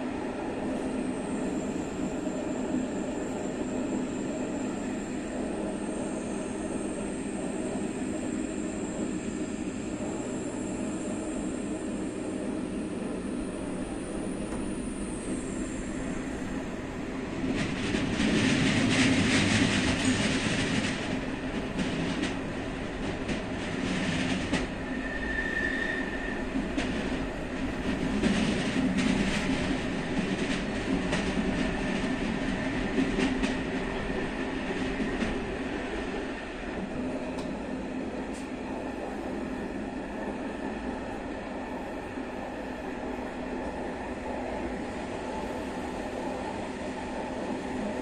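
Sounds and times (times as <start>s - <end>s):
train wheel-and-rail rumble: 0.0s - 48.0s
high wheel squeal: 24.9s - 26.4s.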